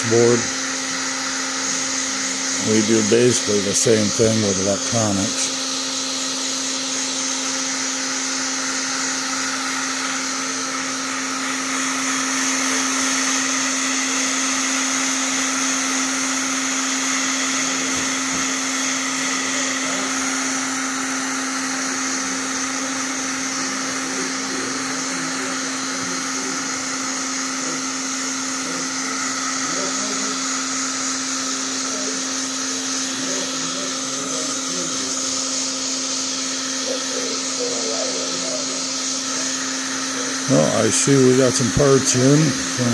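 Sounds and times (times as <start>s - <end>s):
heat gun blowing: 0.0s - 42.9s.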